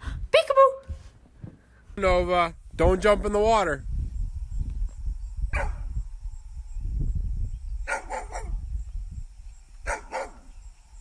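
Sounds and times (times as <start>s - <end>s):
dog barking: 5.5s - 5.9s, 7.9s - 8.6s, 9.8s - 10.5s.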